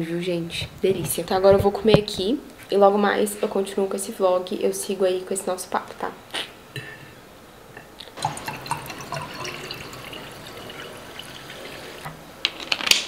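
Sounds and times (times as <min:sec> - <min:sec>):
sparkling water poured into glass: 0:08.2 - 0:12.1
water fizzing: 0:08.2 - 0:12.1.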